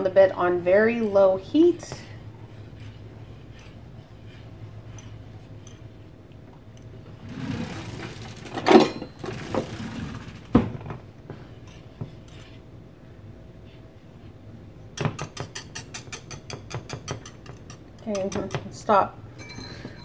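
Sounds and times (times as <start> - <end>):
whisk scraping a saucepan: 0.4 - 6.1, 11.4 - 12.7.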